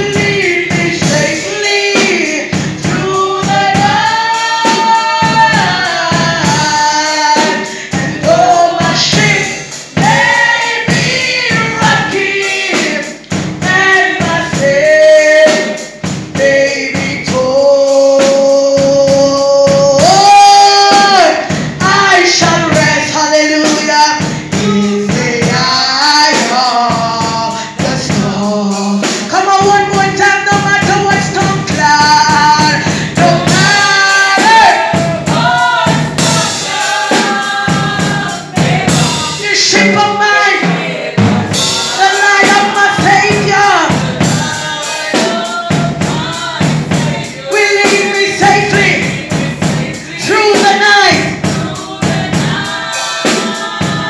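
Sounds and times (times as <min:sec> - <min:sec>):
woman singing into microphone: 0:00.0 - 0:15.8, 0:29.0 - 0:54.0
man and women singing gospel: 0:00.0 - 0:54.0
steady percussive beat: 0:00.0 - 0:54.0.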